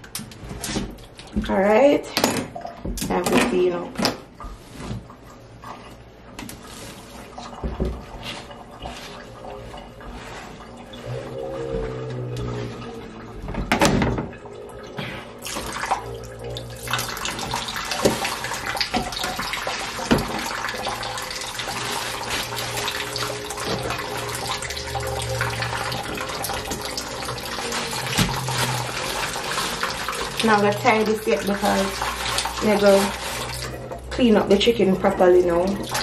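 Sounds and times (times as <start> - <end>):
plastic bag crinkling: 21.0 - 30.8.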